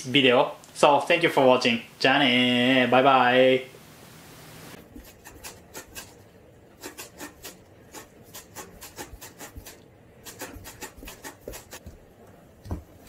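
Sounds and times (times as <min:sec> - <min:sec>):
cat scratching cardboard box: 0:04.8 - 0:06.2, 0:06.8 - 0:12.0.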